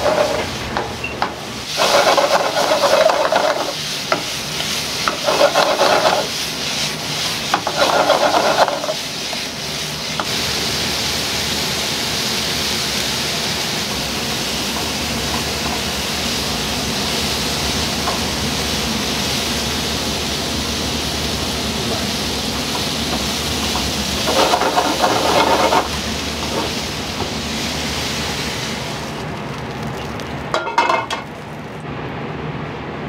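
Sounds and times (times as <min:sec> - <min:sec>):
steady hiss: 0:01.5 - 0:30.5.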